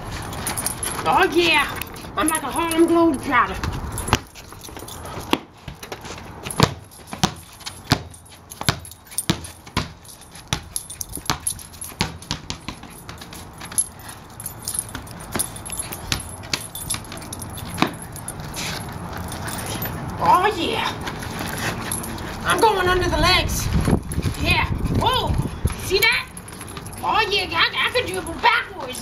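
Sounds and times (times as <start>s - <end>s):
ball bouncing on concrete: 3.5s - 19.0s.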